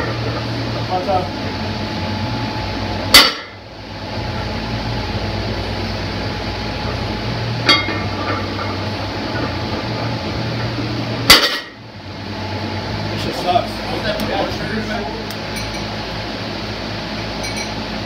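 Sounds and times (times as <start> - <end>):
steady low hum: 0.0 - 18.0
bar and plates clinking: 15.5 - 15.9, 17.4 - 17.8.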